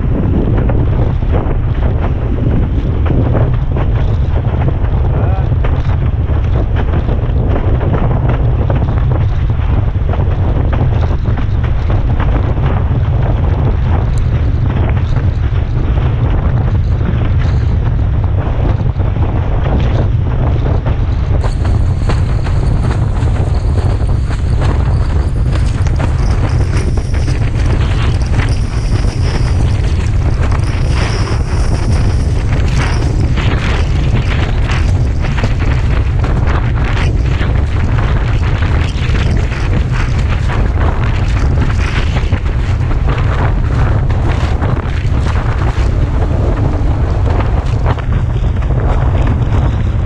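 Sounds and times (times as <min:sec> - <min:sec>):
wind buffeting microphone: 0:00.0 - 0:50.0
water spray hissing: 0:21.4 - 0:25.2.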